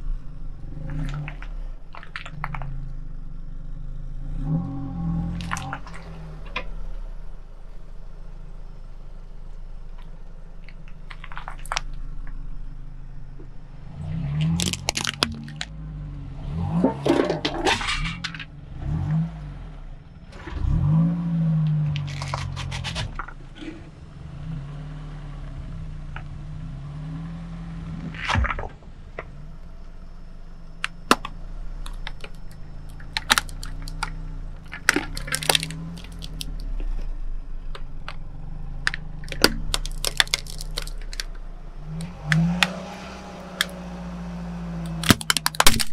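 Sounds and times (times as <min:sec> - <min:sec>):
car engine at low speed: 0:00.0 - 0:45.9
tyre crushing objects: 0:14.3 - 0:15.7, 0:31.1 - 0:36.7, 0:39.2 - 0:45.9.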